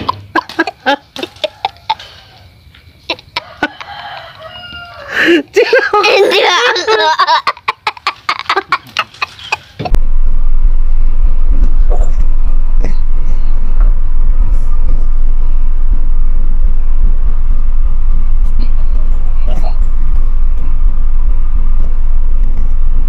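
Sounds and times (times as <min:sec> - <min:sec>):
loud low rumble: 0:09.9 - 0:23.0.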